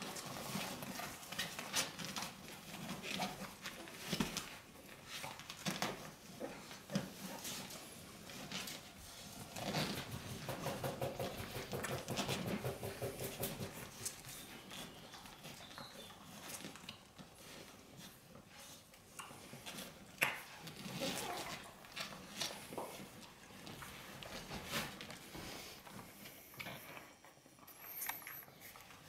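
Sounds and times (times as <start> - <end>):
puppies suckling: 0.0 - 29.0
puppies whimpering and squeaking: 26.7 - 29.0.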